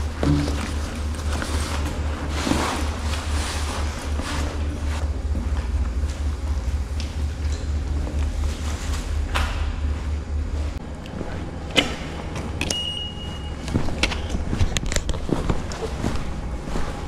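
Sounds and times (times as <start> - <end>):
backpack and clothing rustling: 0.0 - 5.0, 13.1 - 17.0
steady low rumble: 0.0 - 17.0.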